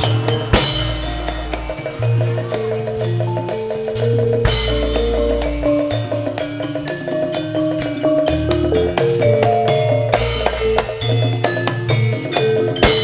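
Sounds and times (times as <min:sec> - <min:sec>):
cymbal crash: 0:00.0 - 0:06.1
band melody with bass and drums: 0:00.0 - 0:13.0.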